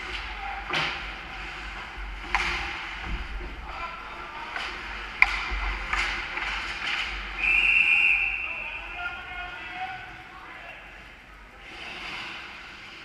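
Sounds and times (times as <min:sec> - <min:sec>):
sticks and puck clacking: 0:00.0 - 0:07.4.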